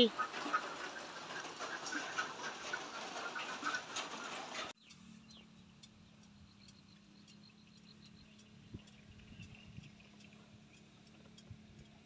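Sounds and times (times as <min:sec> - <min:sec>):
rain falling: 0:00.0 - 0:04.7
birds calling: 0:00.0 - 0:11.5
faint ticks: 0:04.8 - 0:12.0.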